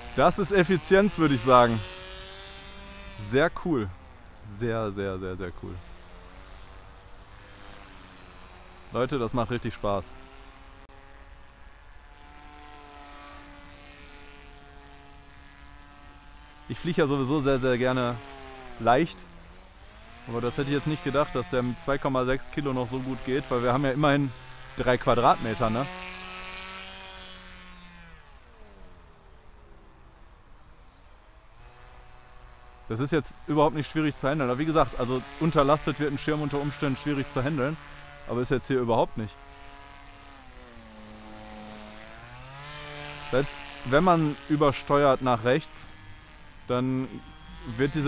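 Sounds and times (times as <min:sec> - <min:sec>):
distant electric motor and propeller hum: 0:00.0 - 0:48.0.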